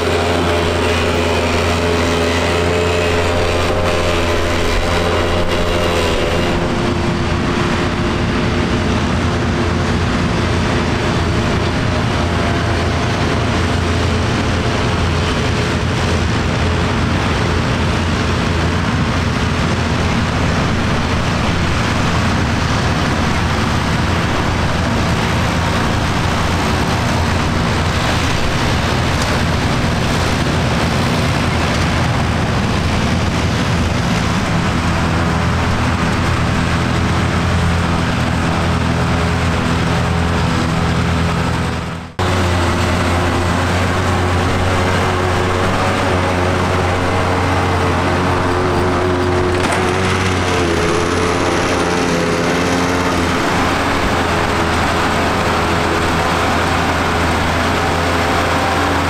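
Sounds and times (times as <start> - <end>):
forage harvester chopping grass: 0.0 - 59.0
tractor engine running: 0.0 - 59.0.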